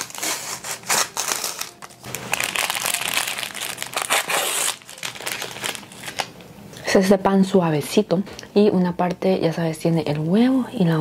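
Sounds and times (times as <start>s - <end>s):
plastic wrapper crinkling: 0.0s - 6.4s.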